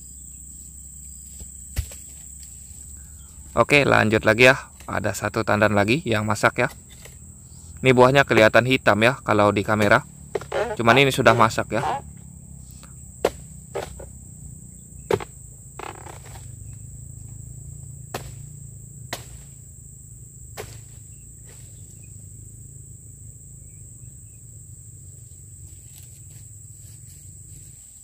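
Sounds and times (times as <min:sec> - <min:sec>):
high insect drone: 0:00.0 - 0:28.0
chisel chopping into stalk: 0:09.8 - 0:12.0, 0:13.2 - 0:14.1.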